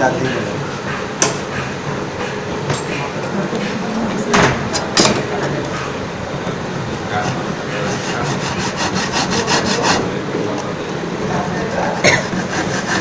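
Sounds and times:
hand saw cutting wood: 7.2 - 10.2, 12.0 - 13.0.

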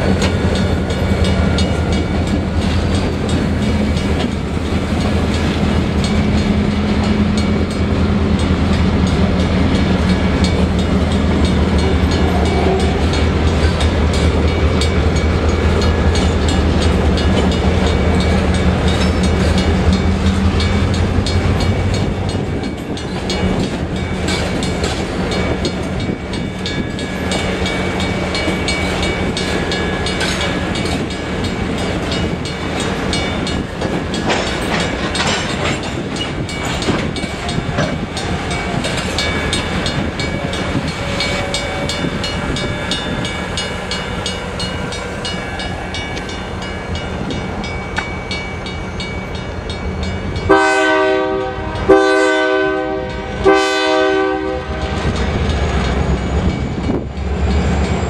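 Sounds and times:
freight train wheels clattering: 0.0 - 58.0
locomotive horn blasts: 50.5 - 55.2.

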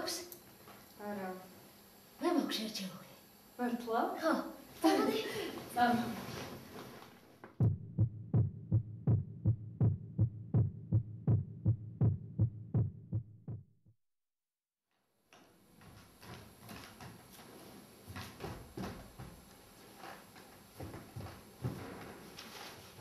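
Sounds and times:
low heartbeat thumping: 7.6 - 13.9.

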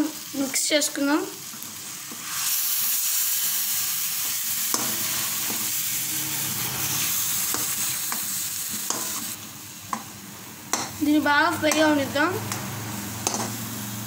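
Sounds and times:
paste sizzling in hot oil: 0.0 - 14.0
spoon clicking against pan: 10.7 - 11.0, 12.5 - 13.6.

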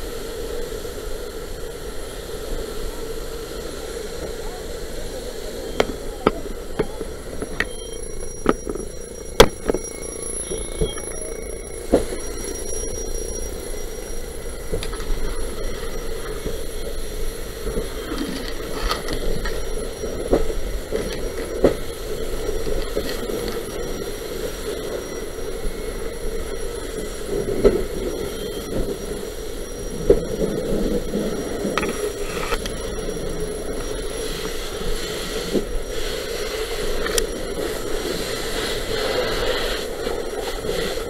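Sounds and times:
fire hose spraying water: 33.5 - 41.0.

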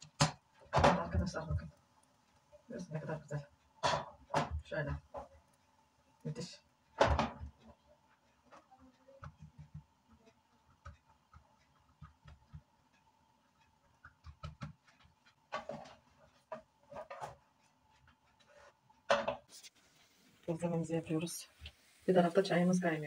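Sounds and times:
kitchen handling clicks and taps: 7.0 - 7.8.

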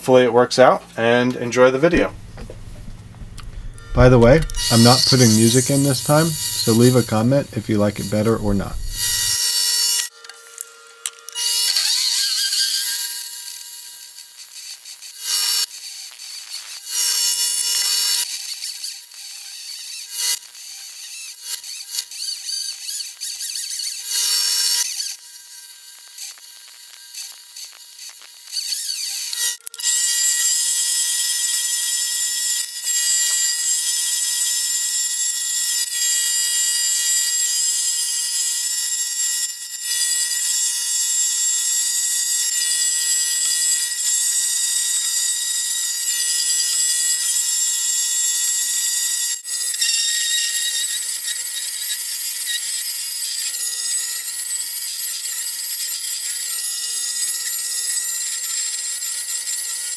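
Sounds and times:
lathe motor whine: 1.9 - 9.4
drill boring metal: 1.9 - 59.9
lathe tool cutting squeal: 3.8 - 10.0, 49.8 - 51.8.

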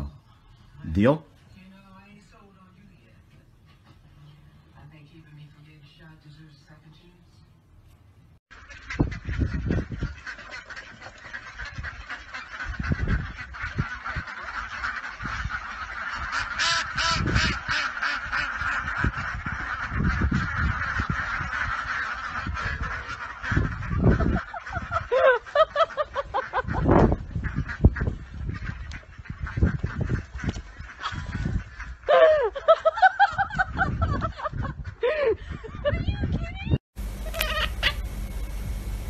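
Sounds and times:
ducks quacking: 8.5 - 35.8, 37.2 - 38.1.

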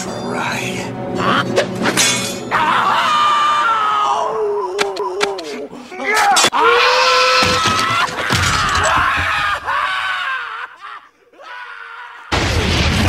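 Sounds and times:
creature screaming: 2.5 - 5.4, 6.1 - 12.4
loud crash: 12.3 - 13.0.

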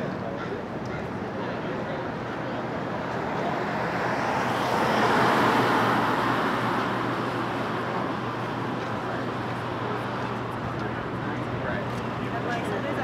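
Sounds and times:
background traffic hum: 0.0 - 13.0
car passing by: 3.2 - 7.7.

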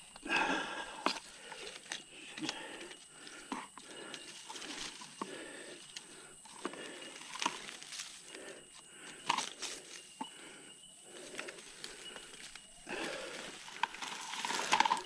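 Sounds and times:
leaves and sticks crunching underfoot: 0.0 - 10.4, 11.0 - 15.0.

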